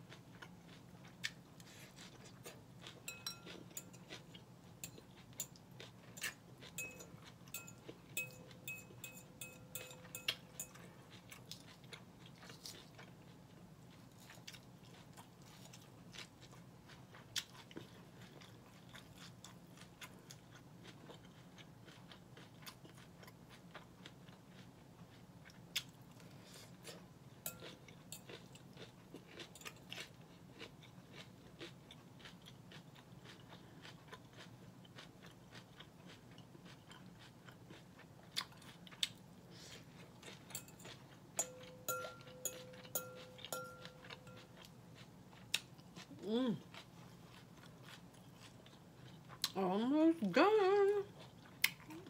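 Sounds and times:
chewing and crunching salad: 0:00.0 - 0:52.0
fork clicking against glass bowl: 0:03.1 - 0:04.0, 0:06.2 - 0:10.8, 0:41.4 - 0:44.4.

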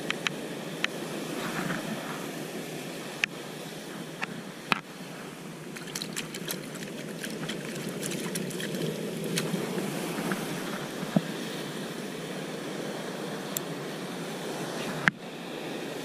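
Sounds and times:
surf washing against rocks: 0:04.8 - 0:16.0.

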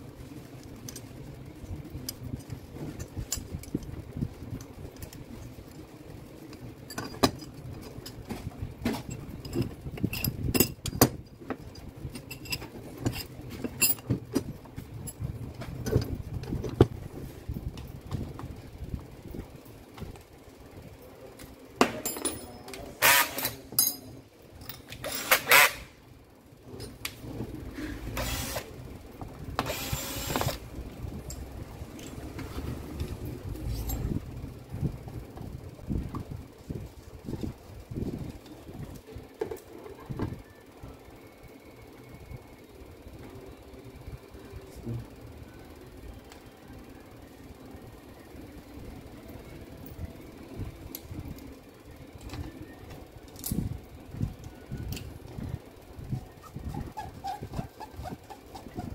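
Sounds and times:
steady low hum: 0:00.0 - 0:58.9
metal clicks and clinks: 0:09.1 - 0:11.1, 0:11.7 - 0:14.1, 0:22.0 - 0:25.3
cordless drill whirring: 0:25.1 - 0:25.8, 0:28.2 - 0:28.7, 0:29.6 - 0:30.6.

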